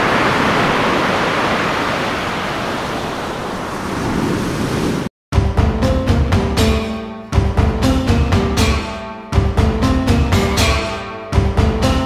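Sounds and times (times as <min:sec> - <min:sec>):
sea surf: 0:00.0 - 0:05.1
wind: 0:00.0 - 0:05.1.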